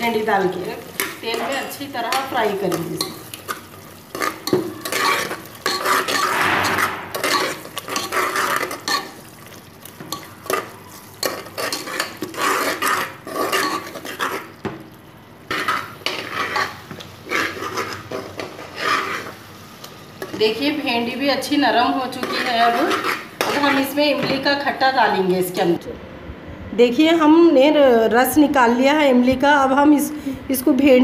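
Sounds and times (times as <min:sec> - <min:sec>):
metal spoon scraping pot: 0:04.1 - 0:09.2, 0:11.2 - 0:14.5, 0:15.5 - 0:19.4, 0:22.1 - 0:24.0.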